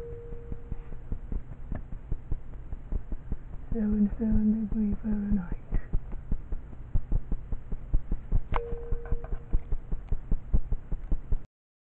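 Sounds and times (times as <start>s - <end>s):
brief steady tone: 0.0s - 1.2s, 8.5s - 9.6s.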